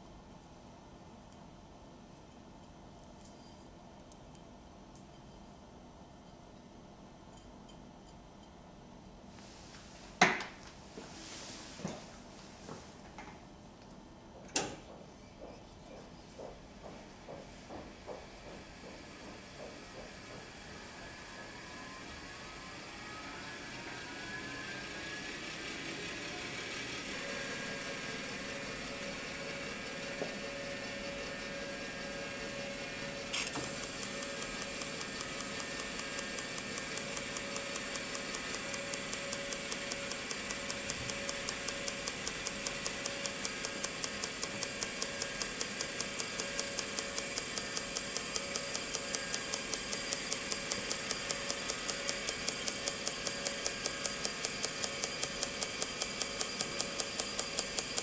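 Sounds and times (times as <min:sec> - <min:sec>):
motor whirring and humming: 0:19.6 - 0:58.0
machine click: 0:33.3 - 0:58.0
evenly spaced ticks: 0:33.7 - 0:58.0.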